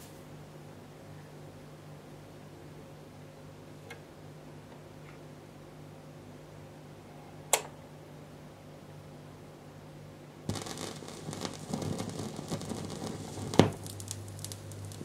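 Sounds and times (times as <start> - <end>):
record player hum: 10.5 - 15.0
vinyl crackle and pops: 10.5 - 15.0.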